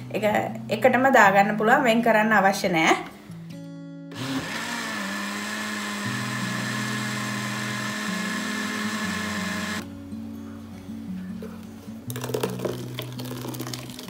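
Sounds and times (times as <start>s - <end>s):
blender running: 4.1s - 9.8s.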